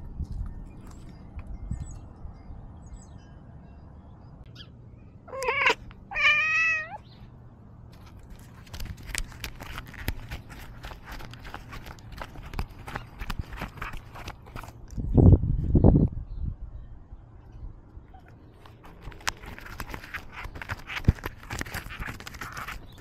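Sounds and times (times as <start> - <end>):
cat meowing: 5.3 - 7.0.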